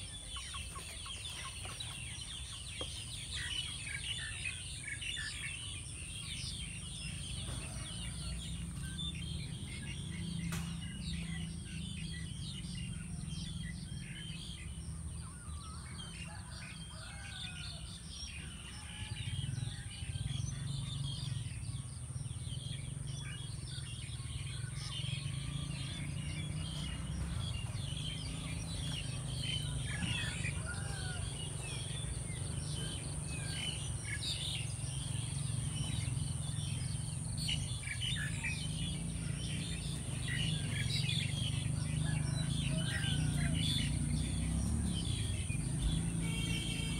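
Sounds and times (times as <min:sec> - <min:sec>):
constant high-pitched whine: 0:00.0 - 0:44.2
small birds chirping: 0:00.0 - 0:46.9.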